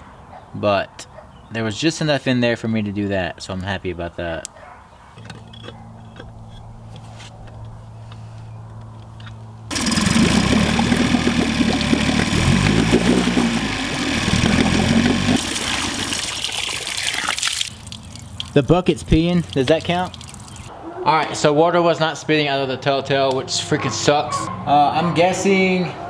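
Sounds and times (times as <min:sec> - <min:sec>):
outboard motor running: 0:09.7 - 0:16.2
propeller churning water: 0:09.7 - 0:20.7.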